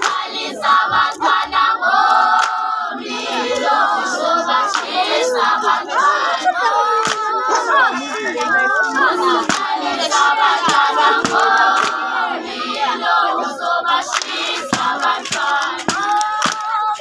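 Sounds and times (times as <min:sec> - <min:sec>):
girls singing in chorus: 0:00.0 - 0:17.0
handclaps keeping the beat: 0:00.0 - 0:17.0.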